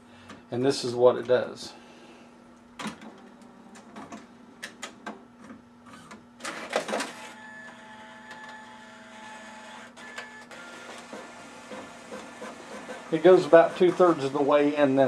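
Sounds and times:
printer motor whine: 5.8s - 15.0s
printer feeder clatter: 6.0s - 14.8s.

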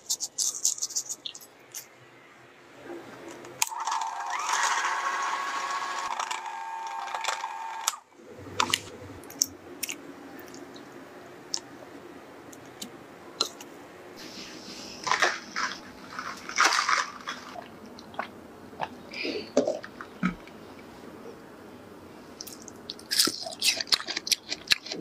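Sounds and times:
hand blender motor whining: 3.8s - 8.0s.

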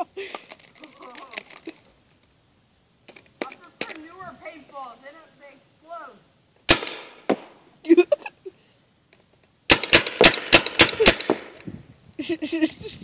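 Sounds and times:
paintball gun shots: 6.7s - 7.6s, 9.7s - 11.6s.

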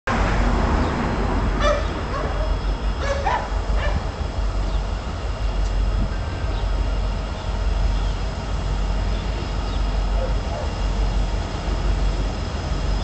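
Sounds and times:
steady low rumble: 0.1s - 13.0s
dog barking: 1.6s - 4.1s, 10.2s - 10.8s.

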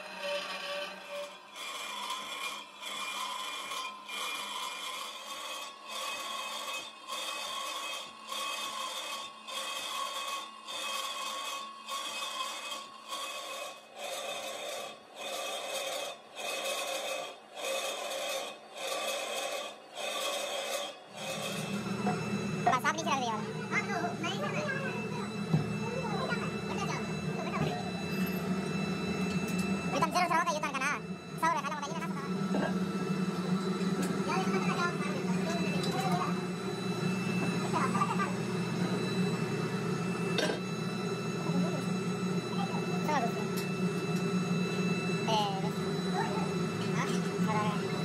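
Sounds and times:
tool rasping on metal: 0.0s - 31.8s.

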